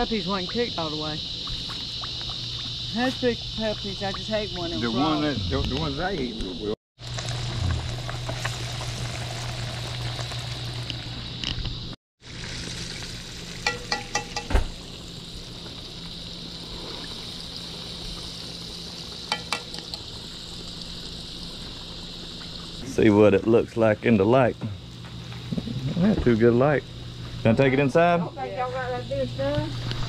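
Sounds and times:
food deep-frying in hot grease: 0.0 - 4.9, 7.0 - 28.6
light metallic clinks: 19.3 - 20.1.

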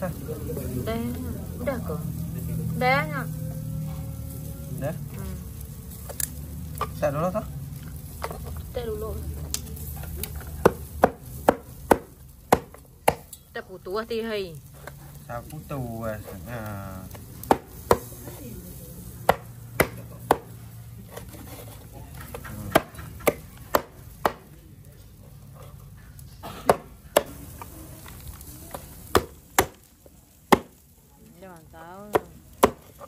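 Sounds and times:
knife chopping on wooden board: 10.6 - 13.2, 19.3 - 20.5, 22.7 - 24.4, 32.1 - 33.0.

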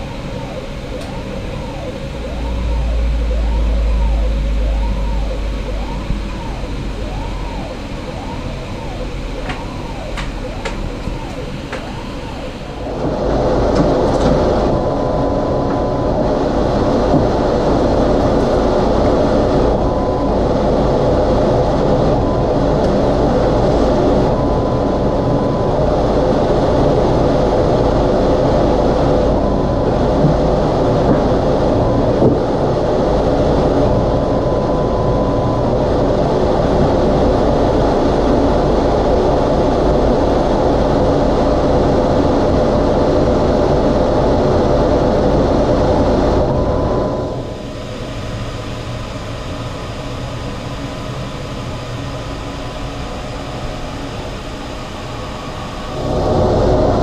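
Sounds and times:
humming tones: 0.0 - 48.8
laser cutter fans running: 0.0 - 57.0.

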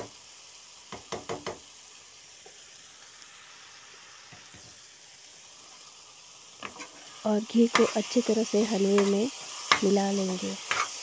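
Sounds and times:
faint sizzle: 0.0 - 11.0
metal spoon scraping a pan: 6.6 - 8.3, 8.9 - 9.9, 10.6 - 11.0.

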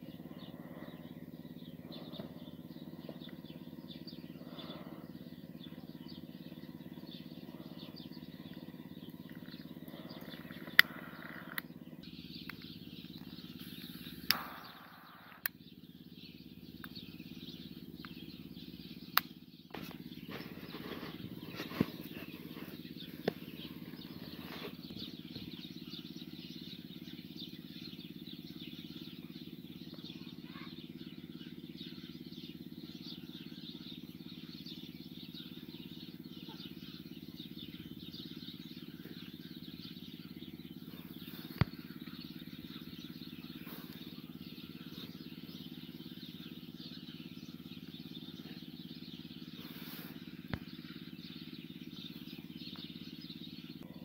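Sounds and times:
steady low hum: 0.0 - 54.0
sharp clicks: 8.5 - 11.7, 12.4 - 15.6.

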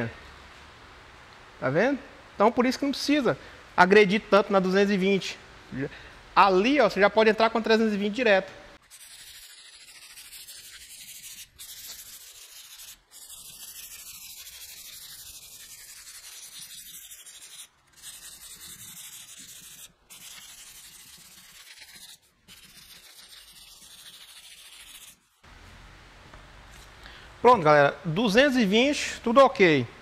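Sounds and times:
sandpaper scrubbing: 8.8 - 25.5.

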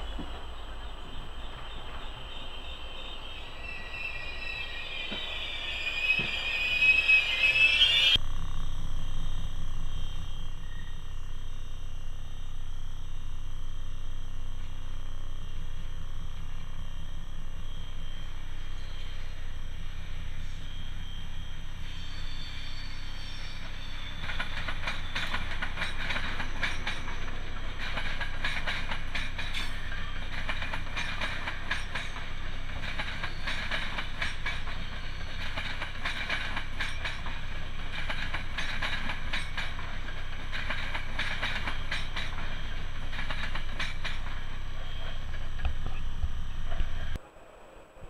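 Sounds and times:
train low rumble: 0.0 - 48.0
train wheels clattering over rail joints: 22.7 - 47.2.

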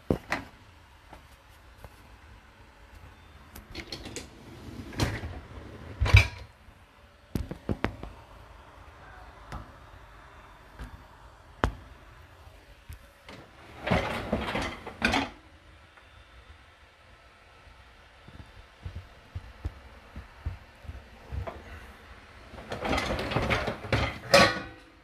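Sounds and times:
dishwasher racks sliding: 3.7 - 6.5, 13.3 - 15.4, 22.4 - 25.0.

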